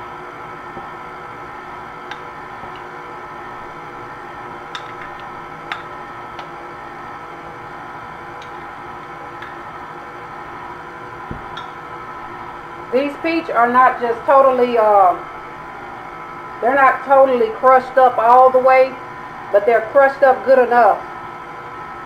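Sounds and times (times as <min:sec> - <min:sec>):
stand mixer motor hum: 0:00.0 - 0:13.8, 0:14.5 - 0:16.6.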